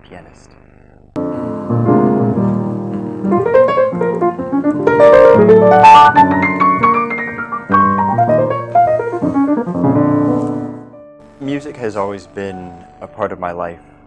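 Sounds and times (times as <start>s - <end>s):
soft hiss: 0.0s - 14.0s
jazz piano playing: 1.2s - 14.0s.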